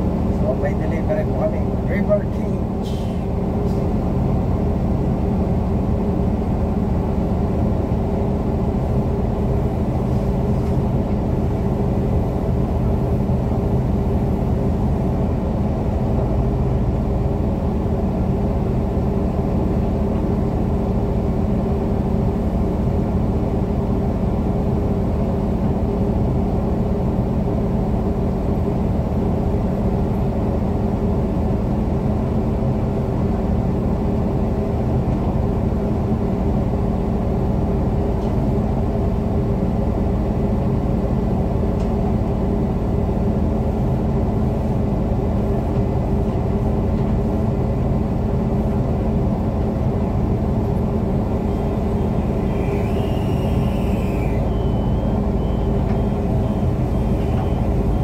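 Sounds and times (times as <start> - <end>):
crane engine droning: 0.0 - 58.0.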